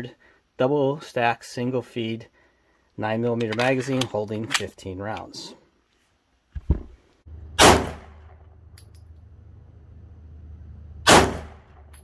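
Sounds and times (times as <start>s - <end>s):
low steady hum: 6.6s - 12.0s
pistol shots: 7.6s - 8.4s, 11.0s - 12.0s.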